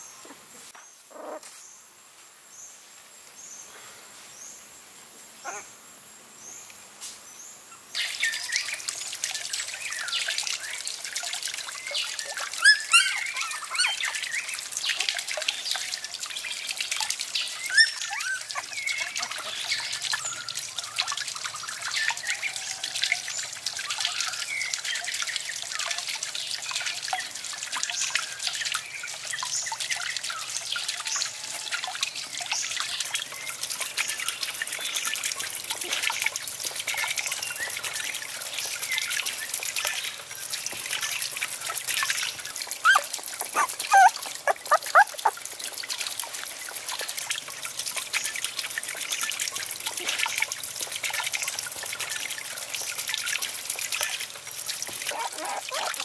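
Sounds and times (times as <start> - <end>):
puppy whimpering: 1.1 - 1.4, 42.8 - 45.4, 55.1 - 56.0
water trickling and splashing: 6.4 - 56.0.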